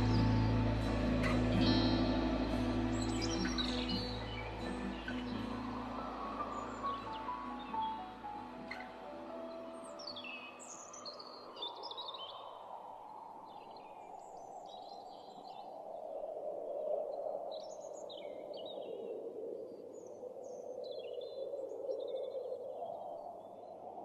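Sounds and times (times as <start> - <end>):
small birds chirping: 0.0 - 12.6
sea waves: 0.0 - 13.4.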